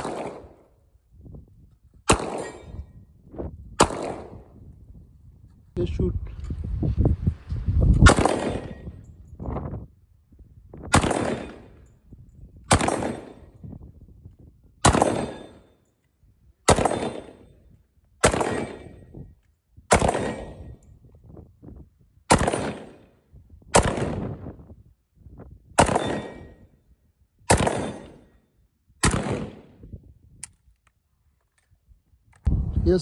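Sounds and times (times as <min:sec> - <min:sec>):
rifle gunshots: 0:00.0 - 0:00.7, 0:02.1 - 0:02.8, 0:03.8 - 0:04.5, 0:08.0 - 0:08.9, 0:10.9 - 0:11.8, 0:12.7 - 0:13.5, 0:14.8 - 0:15.7, 0:16.7 - 0:17.5, 0:18.2 - 0:19.1, 0:19.9 - 0:20.7, 0:22.3 - 0:23.1, 0:23.7 - 0:24.4, 0:25.8 - 0:26.6, 0:27.5 - 0:28.3, 0:29.0 - 0:29.8.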